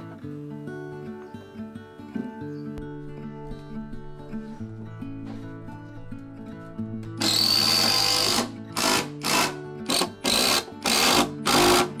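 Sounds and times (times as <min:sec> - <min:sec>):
soft guitar music: 0:00.0 - 0:12.0
impact driver bursts: 0:07.2 - 0:12.0.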